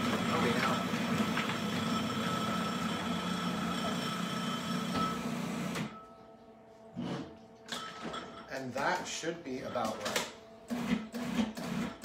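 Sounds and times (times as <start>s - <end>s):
food processor motor running: 0.0s - 5.8s.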